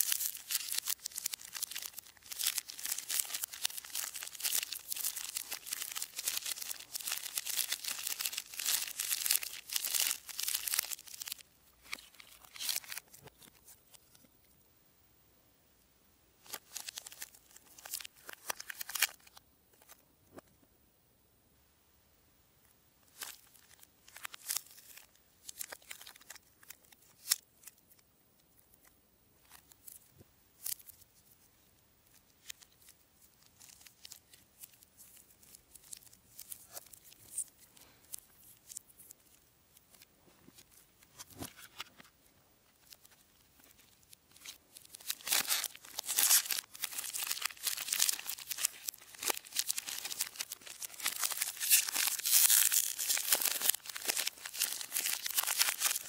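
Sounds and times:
wrappers crinkling: 0.0 - 13.4, 16.4 - 19.4, 23.1 - 27.7, 42.7 - 56.0.

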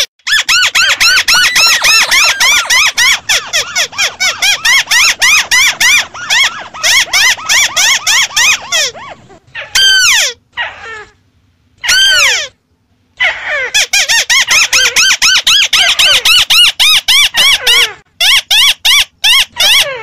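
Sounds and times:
crakes calling: 0.7 - 9.3.

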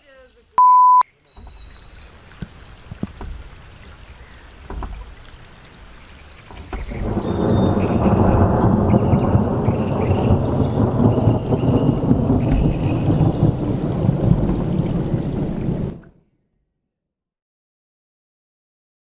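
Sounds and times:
thunder rumbling: 6.4 - 16.0
faint thunder cracks: 6.5 - 16.0.

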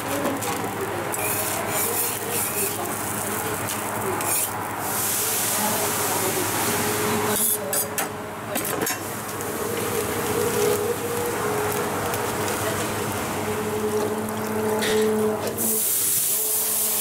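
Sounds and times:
hotplate hissing: 1.0 - 7.6, 15.5 - 17.0
spatula scraping a griddle: 1.1 - 5.2.

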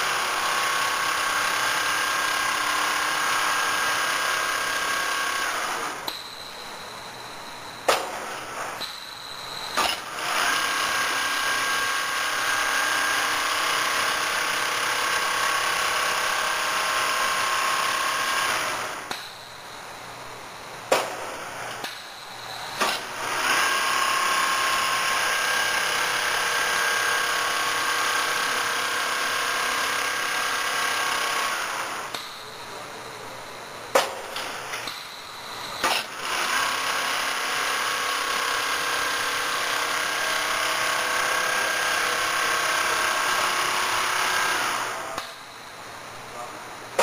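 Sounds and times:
quilting machine whirring: 0.0 - 6.4, 8.0 - 19.2, 21.1 - 32.5, 34.6 - 45.5.

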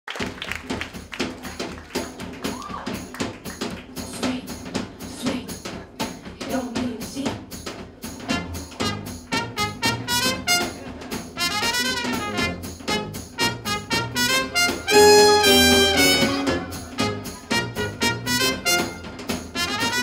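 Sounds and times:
steady clicking beat: 0.6 - 20.0
horn: 8.2 - 20.0.

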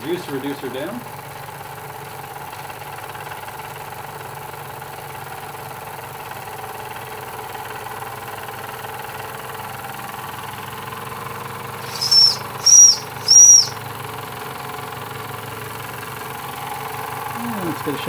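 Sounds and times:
toy steam engines running: 0.0 - 1.1, 11.8 - 13.8, 17.3 - 18.0
high-pitched whistle toots: 11.8 - 13.8.

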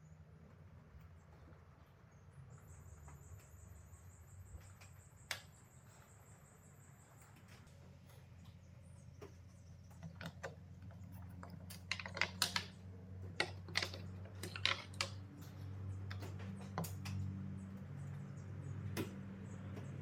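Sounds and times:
tools clicking and knocking: 9.2 - 17.4.

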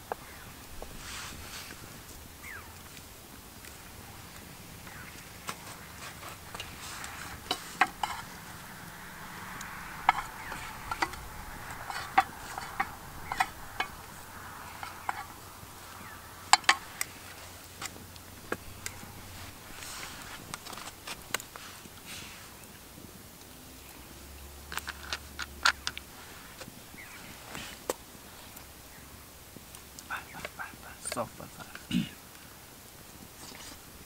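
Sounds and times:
metal spoons clinking on pots: 10.0 - 14.1.

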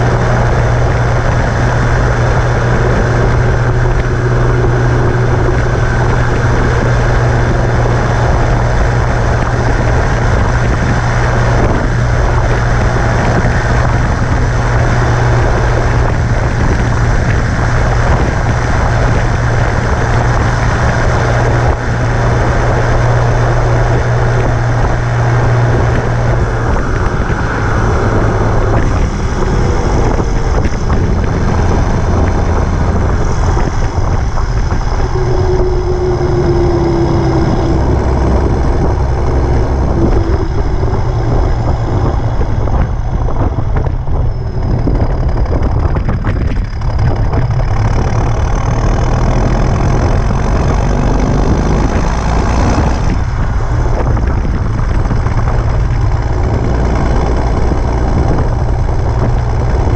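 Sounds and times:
tractor diesel engine: 0.0 - 59.9
wind buffeting microphone: 0.0 - 59.9.

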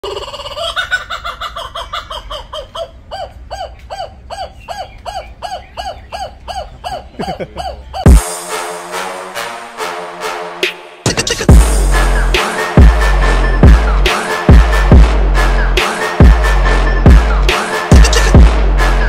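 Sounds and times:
kookaburra calling: 0.0 - 8.2
electronic music: 8.0 - 9.3, 10.5 - 19.0.

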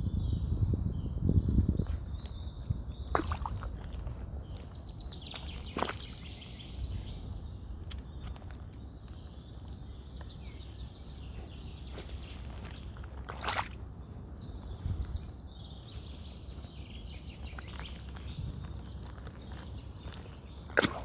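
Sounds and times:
faint birds calling: 1.2 - 21.0
shoes squelching in mud: 3.1 - 6.6, 11.9 - 14.0, 17.5 - 21.0.

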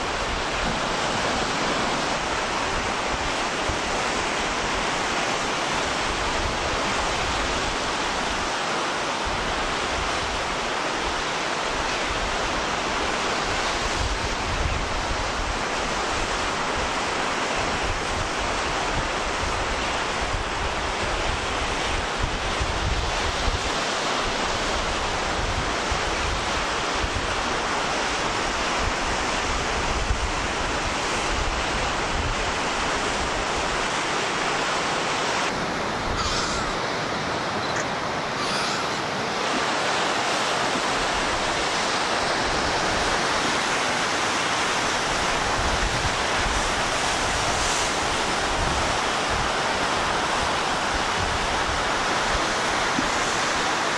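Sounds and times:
sea surf: 0.0 - 53.9
wind rumbling on microphone: 9.3 - 53.9.

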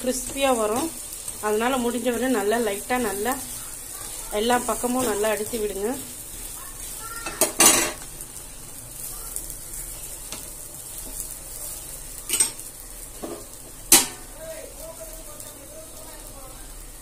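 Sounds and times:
dosa sizzling on griddle: 0.0 - 17.0
metal spatula clacking on pan: 13.9 - 14.2.

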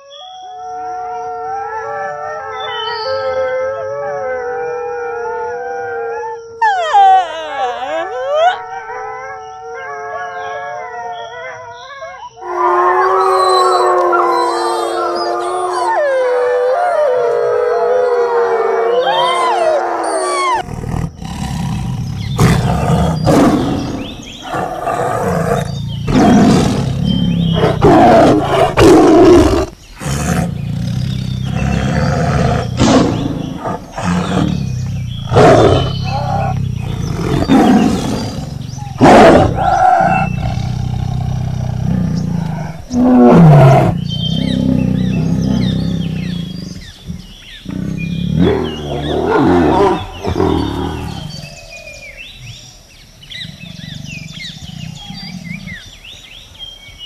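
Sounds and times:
wolves howling: 0.0 - 52.0
tiger growling and roaring: 12.4 - 56.5.

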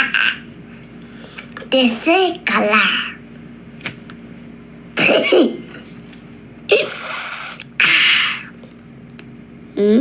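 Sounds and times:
boy's voiced sound: 1.7 - 3.2.

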